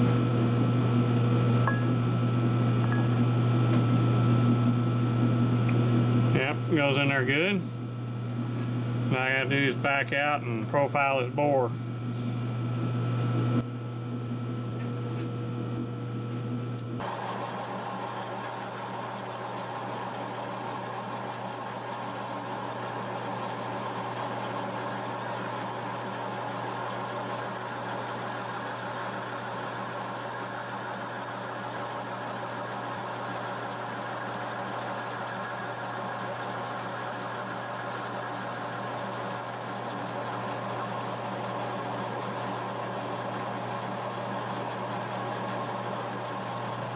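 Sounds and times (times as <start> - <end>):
boring bar cutting with whine: 17.0 - 42.3
lathe machine hum: 17.0 - 46.9.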